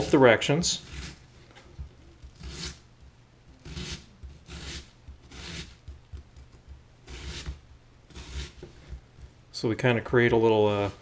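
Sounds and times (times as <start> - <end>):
knife slicing onion on board: 0.8 - 1.2, 2.2 - 9.0.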